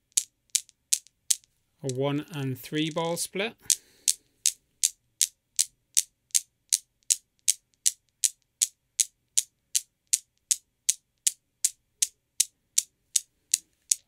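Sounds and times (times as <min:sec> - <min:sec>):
steel balls clacking: 0:00.1 - 0:09.5.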